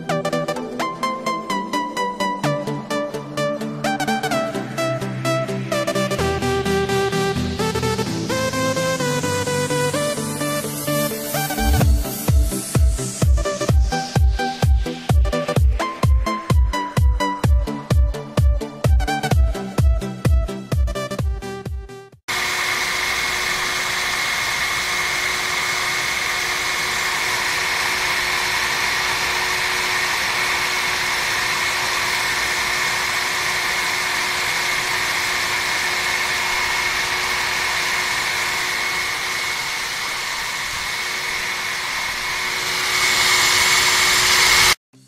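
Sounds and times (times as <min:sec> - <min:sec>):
small electric motors whining: 0:22.3 - 0:44.8.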